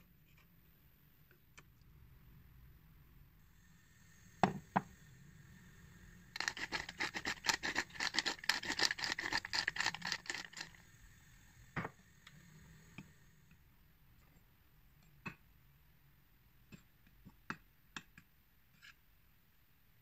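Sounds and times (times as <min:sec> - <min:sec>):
fast scratchy scraping: 0:06.4 - 0:10.8.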